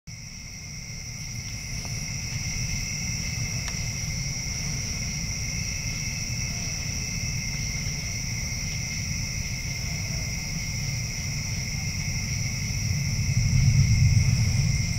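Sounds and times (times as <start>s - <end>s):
insects trilling: 0.1s - 14.9s
low rumble: 12.5s - 14.9s.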